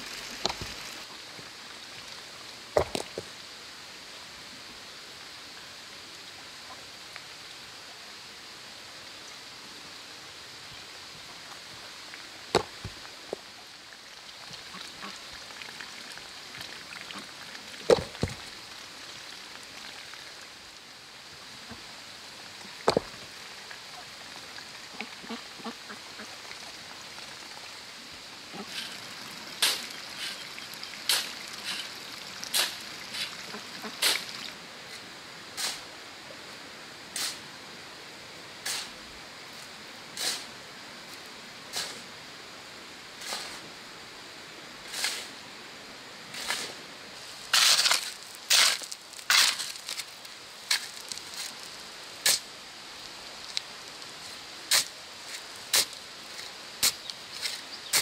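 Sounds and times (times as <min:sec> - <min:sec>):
background hiss: 0:00.0 - 0:58.0
rocks knocking onto stones: 0:02.8 - 0:03.3, 0:12.5 - 0:13.4, 0:17.9 - 0:18.4, 0:22.8 - 0:23.2.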